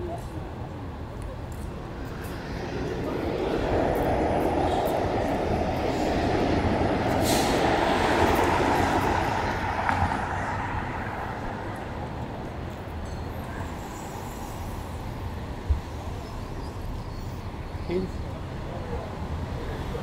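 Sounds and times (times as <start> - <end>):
traffic hum: 0.0 - 20.0
heavy vehicle passing: 1.6 - 12.7.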